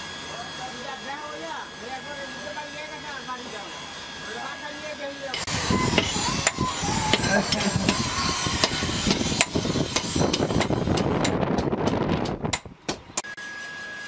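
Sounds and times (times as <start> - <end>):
noisy background: 0.0 - 13.4
hammer striking hot steel: 5.3 - 13.4.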